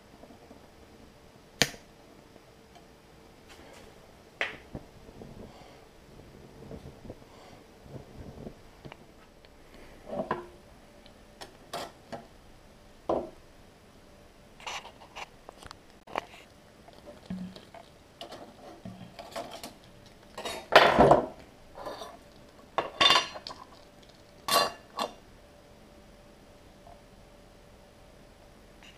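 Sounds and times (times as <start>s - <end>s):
tin stove parts clinking: 22.8s - 23.5s, 24.5s - 25.2s.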